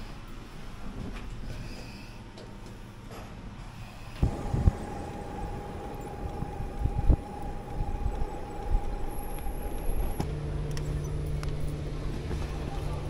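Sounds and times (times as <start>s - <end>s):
electric motor whine: 4.2s - 12.0s
tyres and wind rumble: 4.2s - 13.0s.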